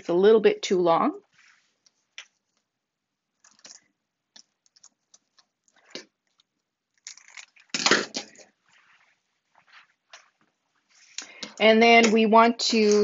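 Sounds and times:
scissors snipping velcro: 7.0s - 8.4s.

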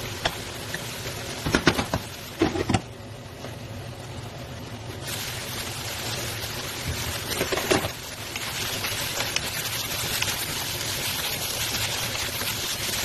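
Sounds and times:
meat sizzling in a frying pan: 0.0s - 13.0s
spatula stirring: 6.9s - 13.0s.

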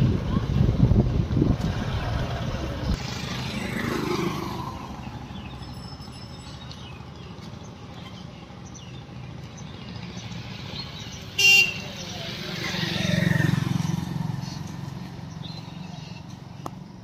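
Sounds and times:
wind rumble on microphone: 0.0s - 3.1s
vehicle passing: 0.6s - 16.6s.

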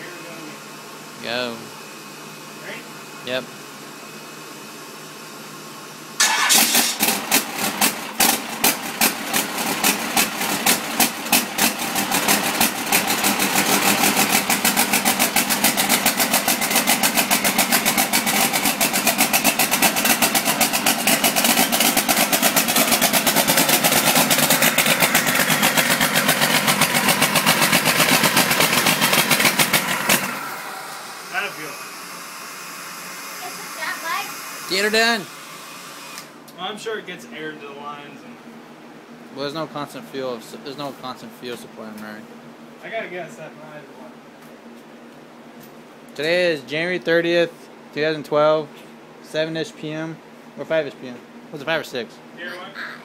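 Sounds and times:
diesel engine starting and idling: 6.2s - 34.1s.

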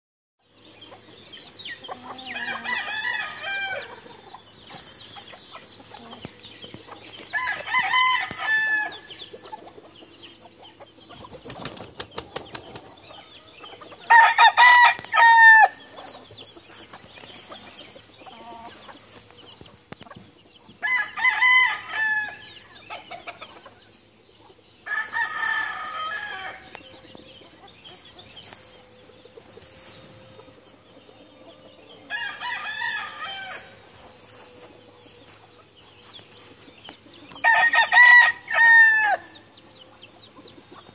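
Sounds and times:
roosters crowing: 1.8s - 4.5s, 5.6s - 10.6s, 12.4s - 19.0s, 20.7s - 23.3s, 24.8s - 28.7s, 31.3s - 35.7s, 37.3s - 39.8s.

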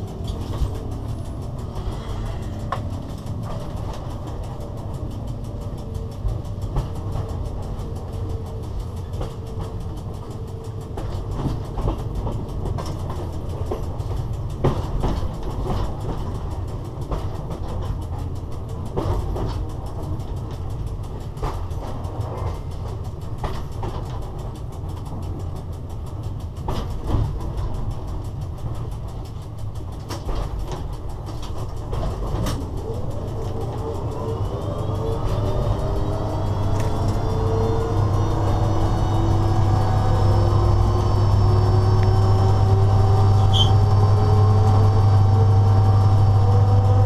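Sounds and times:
train running rumble: 0.0s - 47.0s.

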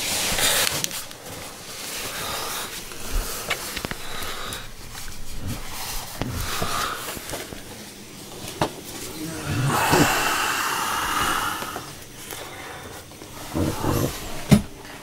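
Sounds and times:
rustling: 0.0s - 10.3s
person breathing: 0.2s - 7.6s, 9.1s - 14.5s.

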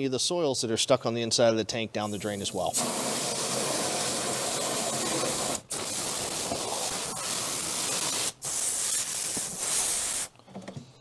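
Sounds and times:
hose spraying water into tank: 2.1s - 10.3s.

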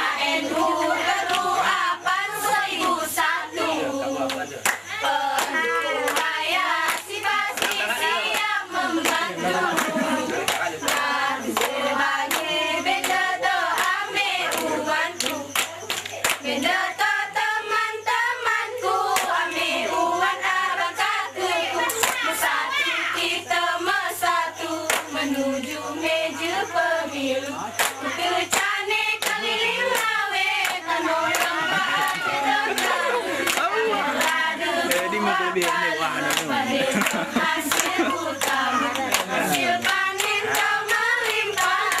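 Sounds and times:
women singing together: 0.0s - 42.0s
sharp hand claps: 4.3s - 13.2s, 13.8s - 16.5s, 19.1s - 19.4s, 21.9s - 22.3s, 24.8s - 25.1s, 27.8s - 42.0s.

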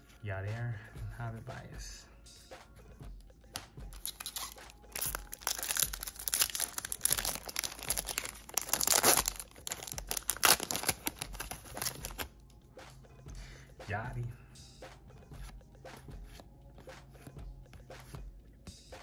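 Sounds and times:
foil wrapper crinkling: 4.0s - 12.3s.

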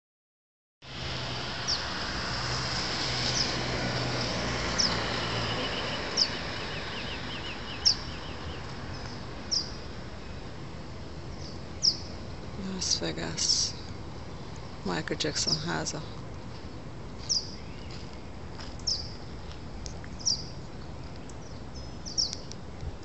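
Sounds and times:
songbirds chirping: 4.6s - 23.0s.

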